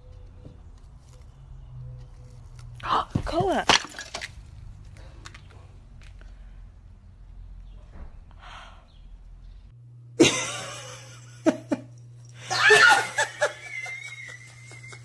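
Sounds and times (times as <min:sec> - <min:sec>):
person laughing: 0:10.2 - 0:15.0.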